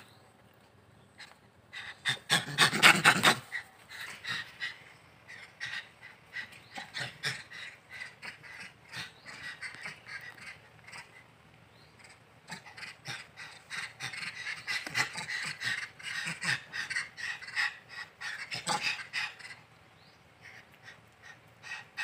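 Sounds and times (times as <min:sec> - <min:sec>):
monkeys giving harsh threat barks: 0:01.2 - 0:11.3, 0:11.9 - 0:19.7.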